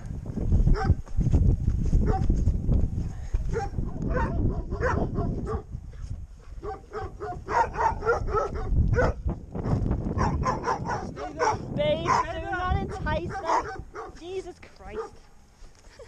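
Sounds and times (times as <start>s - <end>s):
wind rumbling on microphone: 0.0s - 16.0s
dog yapping: 3.6s - 5.6s, 6.6s - 9.2s, 13.3s - 14.2s.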